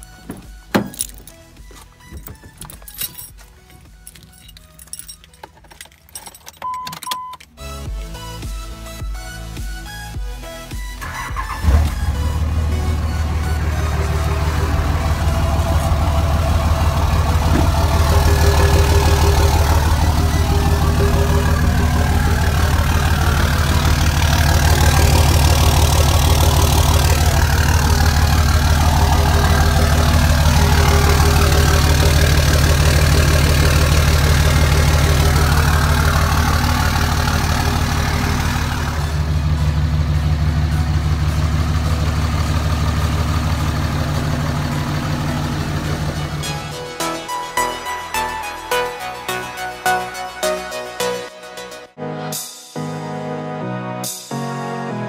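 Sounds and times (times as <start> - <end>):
pickup truck engine idling: 11.3 - 46.8.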